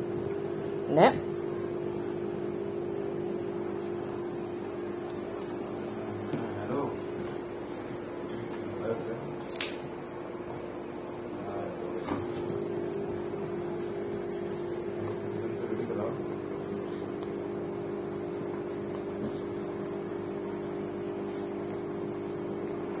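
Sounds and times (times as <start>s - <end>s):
electrical hum: 0.0s - 23.0s.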